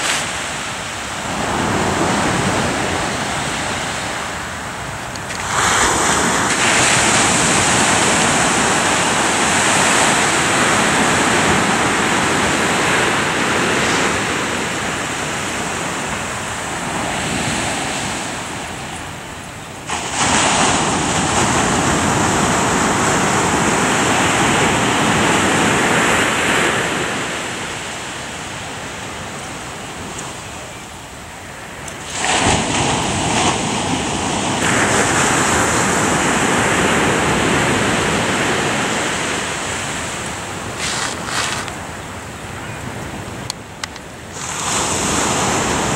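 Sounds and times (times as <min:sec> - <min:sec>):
surf breaking on sandy beach: 0:00.0 - 0:30.9, 0:31.5 - 0:45.9.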